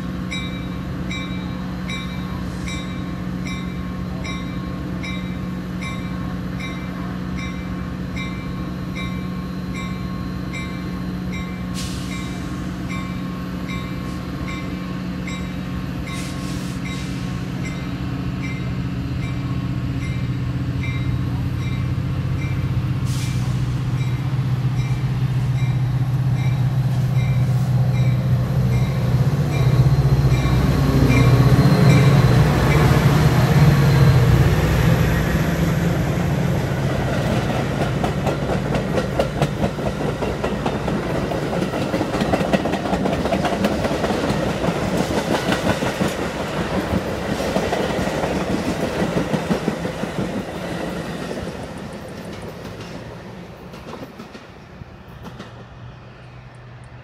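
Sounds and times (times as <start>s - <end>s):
diesel locomotive engine: 0.0s - 57.0s
train bell ringing: 0.2s - 22.9s, 23.9s - 34.6s
train wheels clicking over rail joints: 36.9s - 55.7s.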